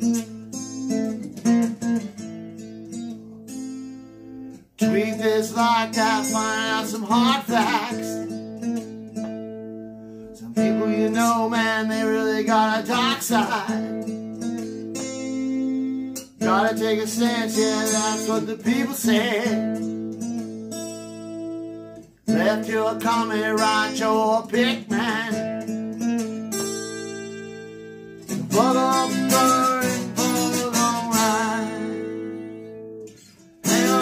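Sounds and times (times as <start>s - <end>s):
acoustic guitar chords: 0.0s - 34.0s
man singing: 4.8s - 8.4s, 10.4s - 14.3s, 15.9s - 19.9s, 22.3s - 25.8s, 28.4s - 32.6s, 33.6s - 34.0s.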